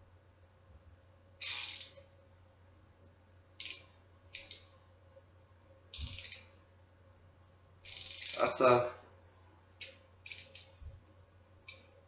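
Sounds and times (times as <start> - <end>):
ratchet clicking: 1.4 - 2.0, 3.6 - 4.6, 6.0 - 6.5, 7.8 - 8.5, 10.2 - 10.8.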